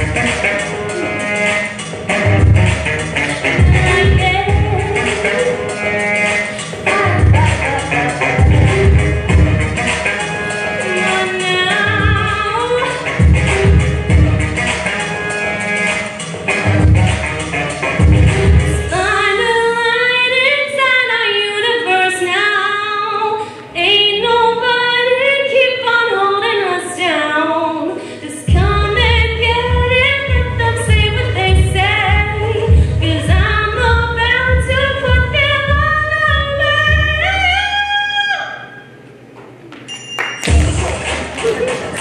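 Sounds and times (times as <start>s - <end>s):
musical accompaniment: 0.0s - 20.4s, 39.9s - 42.0s
deep bass and beat: 2.0s - 5.8s, 6.6s - 10.1s, 13.0s - 14.8s, 16.6s - 18.8s, 28.5s - 37.2s, 40.4s - 42.0s
woman singing into microphone: 3.5s - 9.6s, 10.5s - 13.8s, 18.6s - 38.6s.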